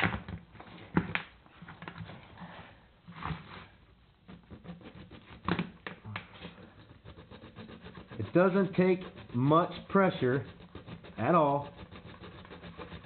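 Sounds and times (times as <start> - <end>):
hand tool scraping metal: 4.2 - 5.5, 6.3 - 13.0.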